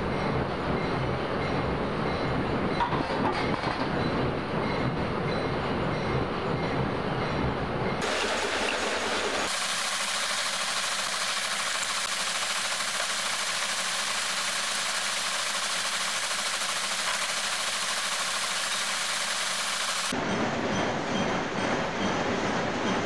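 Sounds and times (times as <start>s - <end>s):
metal lathe running: 8.0s - 20.2s.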